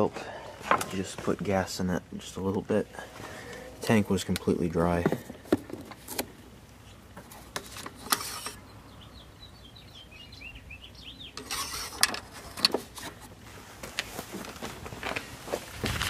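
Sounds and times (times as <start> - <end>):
small birds chirping: 8.4 - 11.8.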